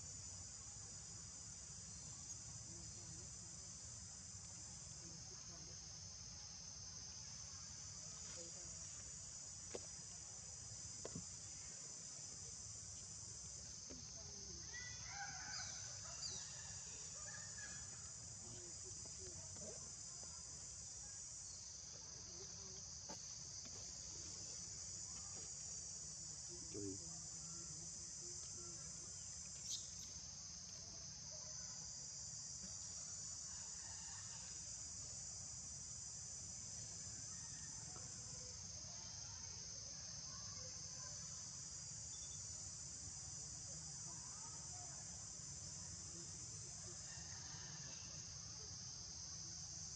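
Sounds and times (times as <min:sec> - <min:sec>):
insects chorus: 0:00.0 - 0:49.9.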